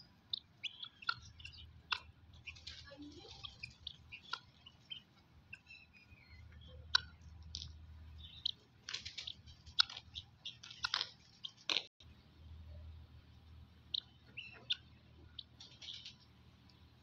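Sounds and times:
faint high chirps: 0:00.0 - 0:07.3, 0:13.9 - 0:16.3
animals chewing and pecking: 0:00.2 - 0:11.9.

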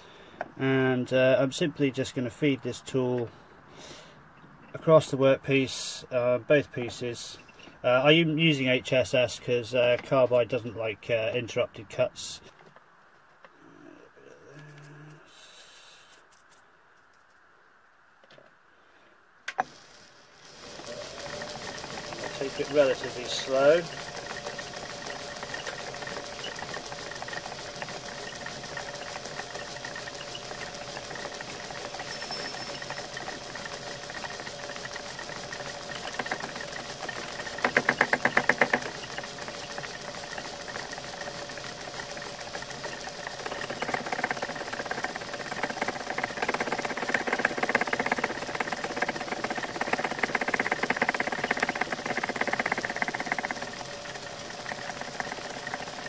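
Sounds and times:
lathe machine hum: 0:19.6 - 0:56.0
rapid rattle: 0:19.6 - 0:56.0
lathe tool knocking: 0:20.5 - 0:56.0
metal cutting: 0:20.5 - 0:56.0.

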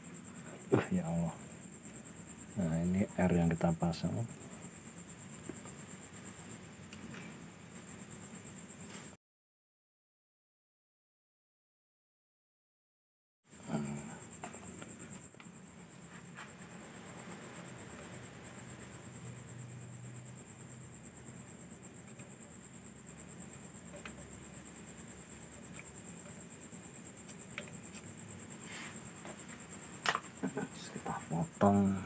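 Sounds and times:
faint low hum: 0:00.0 - 0:08.3
cricket trilling: 0:00.0 - 0:09.2, 0:13.5 - 0:32.0
small ticks: 0:21.8 - 0:22.6, 0:23.5 - 0:28.3.

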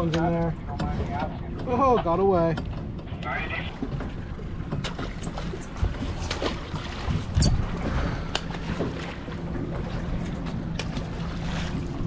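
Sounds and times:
outboard engine idling hum: 0:00.0 - 0:12.0
wind on microphone: 0:05.0 - 0:08.8.

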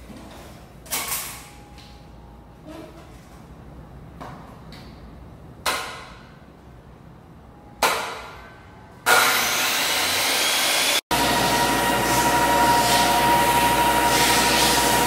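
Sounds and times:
loud steady machine noise: 0:09.1 - 0:15.0.

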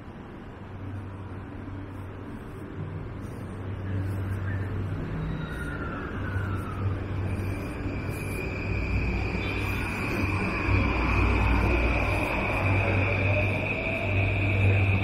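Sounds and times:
street traffic: 0:00.0 - 0:15.0
distant emergency siren: 0:04.5 - 0:15.0.

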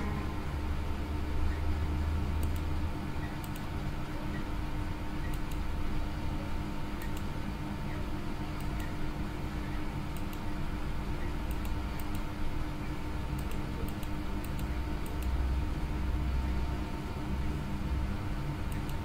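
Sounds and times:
low hum: 0:00.0 - 0:19.0
computer mouse clicks: 0:02.4 - 0:02.7, 0:03.4 - 0:03.7, 0:05.2 - 0:05.7, 0:07.0 - 0:07.3, 0:08.6 - 0:09.0, 0:10.1 - 0:10.5, 0:11.4 - 0:12.3, 0:13.4 - 0:15.4, 0:18.7 - 0:19.0.

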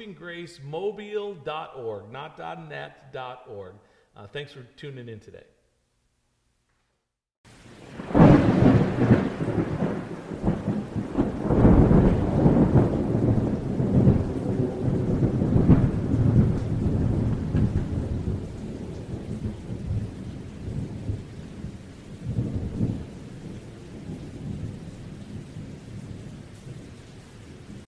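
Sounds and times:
rain: 0:07.5 - 0:27.9
thunder rumbling: 0:07.7 - 0:27.9.

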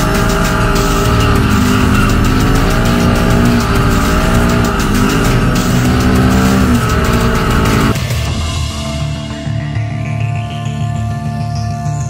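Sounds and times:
engine revving hard: 0:00.0 - 0:08.0
music track: 0:00.0 - 0:12.0.

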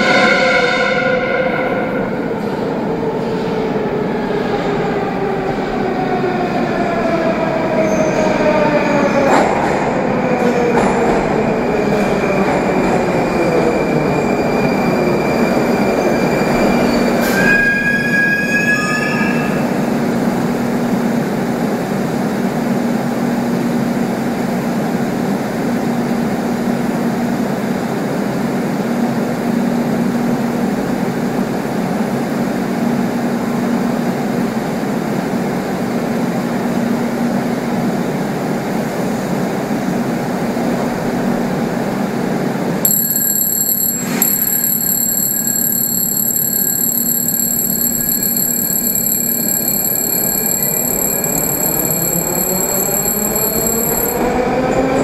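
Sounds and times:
train wheel squeal: 0:07.8 - 0:09.4, 0:11.7 - 0:19.9, 0:42.9 - 0:54.4
sharp high beep: 0:42.9 - 0:54.2.

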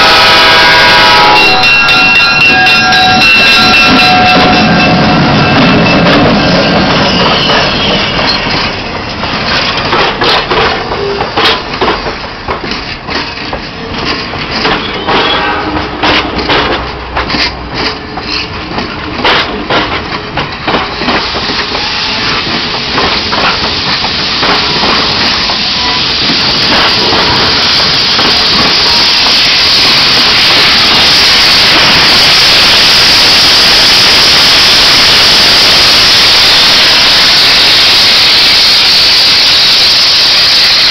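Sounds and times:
train wheels clicking over rail joints: 0:01.6 - 0:35.3
steam locomotive hiss: 0:20.5 - 0:40.9.

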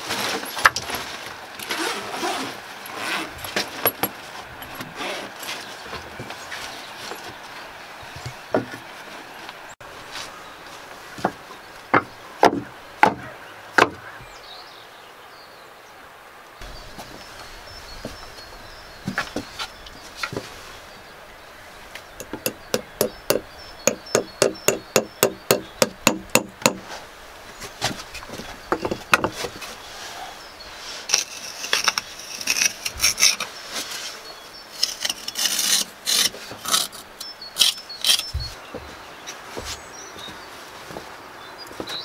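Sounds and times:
scraping and rustling: 0:00.0 - 0:11.5, 0:16.6 - 0:22.8, 0:26.8 - 0:42.0.

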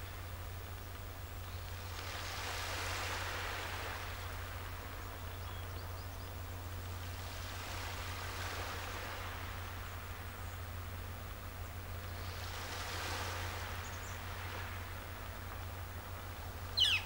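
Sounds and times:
water washing in swells: 0:00.0 - 0:05.4, 0:06.4 - 0:17.0
steady low rumble: 0:03.8 - 0:17.0
faint high chirps: 0:16.8 - 0:17.0.

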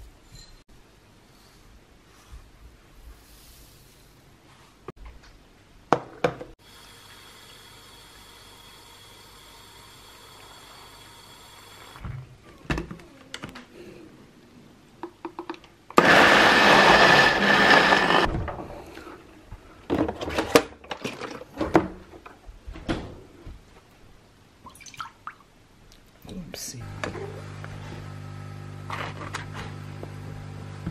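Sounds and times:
blender running: 0:16.0 - 0:18.3, 0:26.8 - 0:30.9.

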